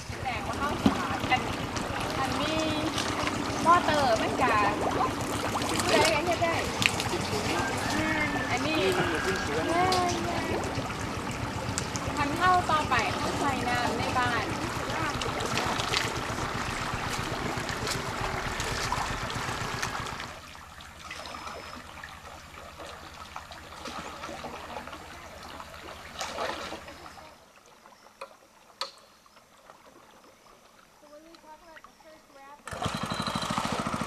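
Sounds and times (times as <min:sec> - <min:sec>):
low even throb: 0:00.0 - 0:22.4
river water trickling and splashing: 0:00.0 - 0:34.0.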